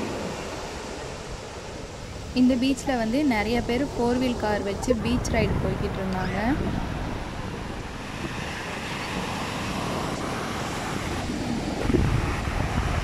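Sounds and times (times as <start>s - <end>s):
wind buffeting microphone: 0.0s - 13.0s
surf breaking on beach: 6.5s - 13.0s.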